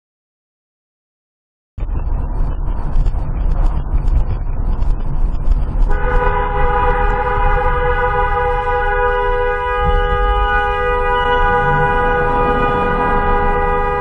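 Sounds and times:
road and engine rumble inside car: 0:01.8 - 0:14.0
vehicle horn long blast: 0:05.9 - 0:14.0.

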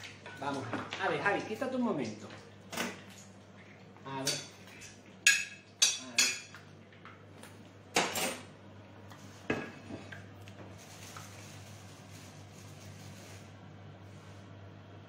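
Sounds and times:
utensils clattering on crockery: 0:08.0 - 0:08.5.

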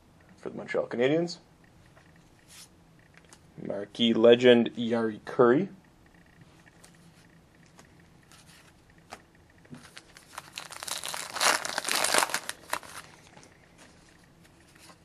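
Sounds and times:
plastic wrapper tearing and crinkling: 0:09.8 - 0:13.3.

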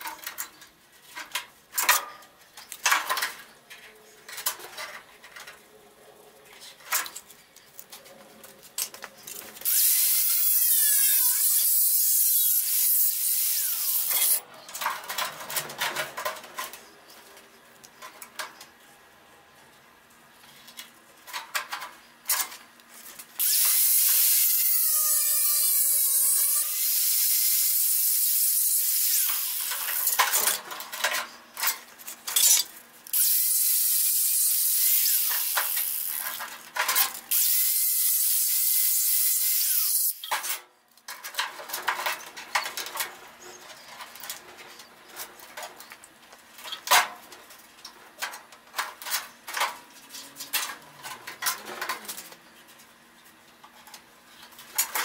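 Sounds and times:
angle grinder grinding metal: 0:09.6 - 0:14.4, 0:23.4 - 0:30.2, 0:32.4 - 0:36.5, 0:37.2 - 0:40.3.

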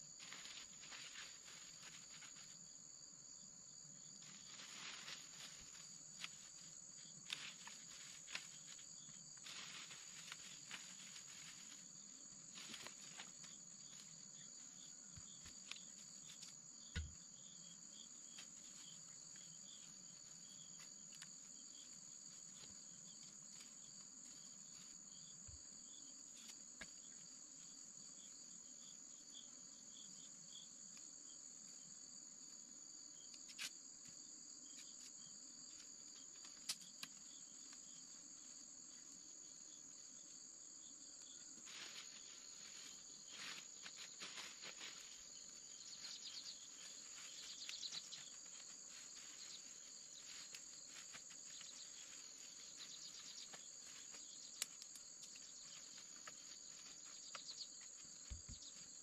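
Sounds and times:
insect chirping: 0:00.0 - 0:59.0
insects droning: 0:00.0 - 0:59.0
leafy branches rustling: 0:00.1 - 0:02.7, 0:04.2 - 0:14.6, 0:41.6 - 0:57.3.

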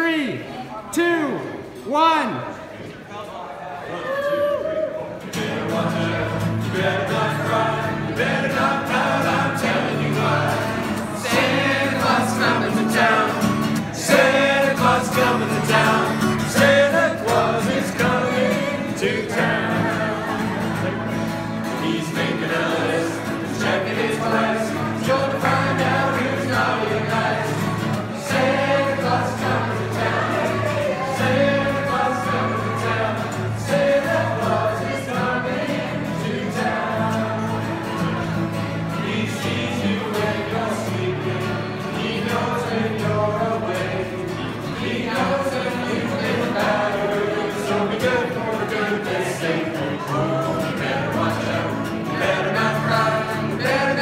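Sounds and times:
strummed acoustic guitars: 0:05.1 - 0:54.0
group singing: 0:05.2 - 0:54.0.

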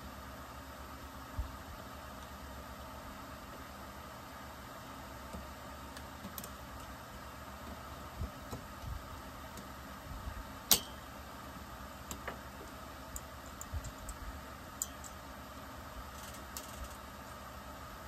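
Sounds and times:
steady background hum: 0:00.0 - 0:18.0
metal tools clicking and tapping: 0:10.7 - 0:11.0, 0:14.8 - 0:15.2
sharp metallic click: 0:10.7 - 0:11.0.

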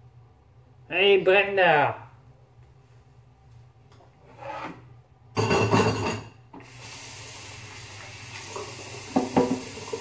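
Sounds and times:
tap running into sink: 0:08.3 - 0:10.0.

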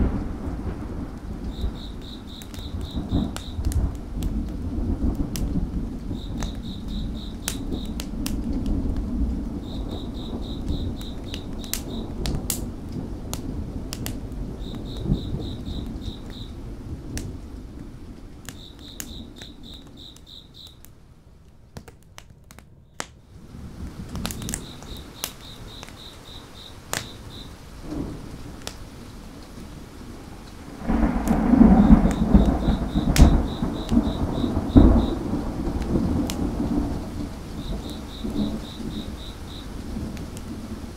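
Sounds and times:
rolling thunder: 0:00.0 - 0:19.8, 0:27.1 - 0:40.9
rain hiss: 0:00.0 - 0:21.8, 0:23.2 - 0:40.9
wood fire crackling: 0:00.0 - 0:40.9
crickets chirping: 0:00.1 - 0:04.0, 0:04.9 - 0:08.2, 0:09.5 - 0:12.3, 0:14.3 - 0:16.6, 0:18.5 - 0:20.8, 0:23.8 - 0:28.3, 0:29.8 - 0:40.9.

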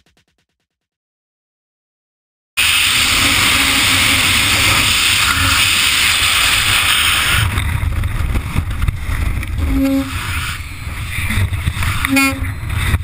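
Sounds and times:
wind buffeting camera: 0:03.0 - 0:13.0.

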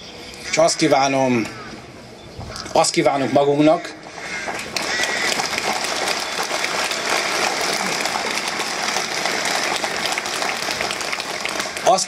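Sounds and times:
crowd applauding: 0:04.3 - 0:12.0.

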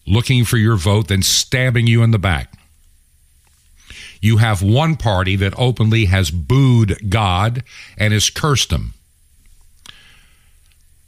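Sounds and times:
man speaking: 0:00.0 - 0:02.7, 0:03.9 - 0:09.0.

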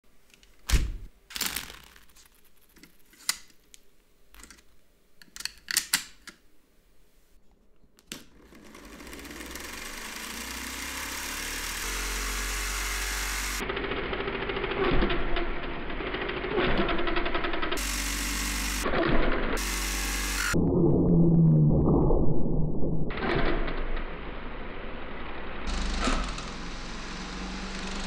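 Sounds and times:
small electric motor whir: 0:08.4 - 0:15.4, 0:17.7 - 0:18.9, 0:19.6 - 0:20.6, 0:25.6 - 0:28.0.

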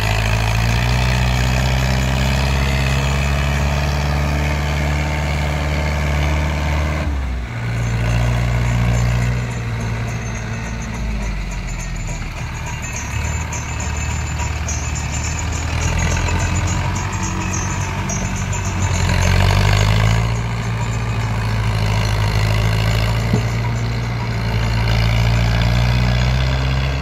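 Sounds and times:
tractor diesel engine working: 0:00.0 - 0:27.0.

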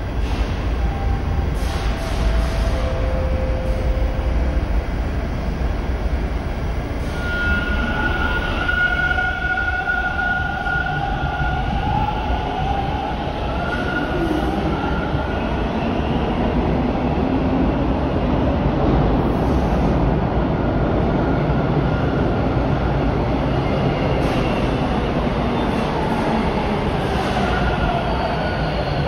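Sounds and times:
subway train rumble: 0:00.0 - 0:29.0.

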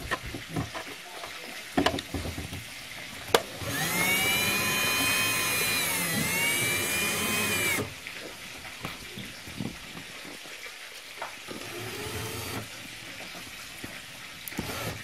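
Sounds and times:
small electric motor whining: 0:03.6 - 0:07.9, 0:11.5 - 0:12.7, 0:14.6 - 0:15.0.

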